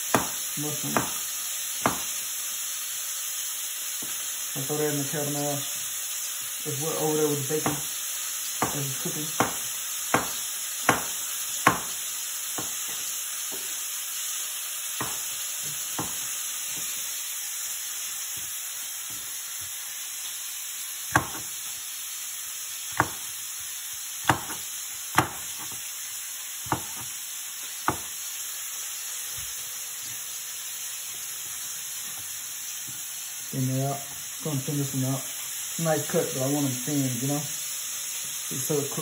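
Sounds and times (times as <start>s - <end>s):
bacon sizzling in oil: 0.0s - 39.0s
knife tapping on cutting board: 0.1s - 1.2s, 1.8s - 2.1s, 8.6s - 12.0s, 12.6s - 13.7s, 15.0s - 17.0s, 19.1s - 19.8s, 21.1s - 21.5s, 23.0s - 23.3s, 24.2s - 25.8s, 26.6s - 27.1s, 27.8s - 28.1s.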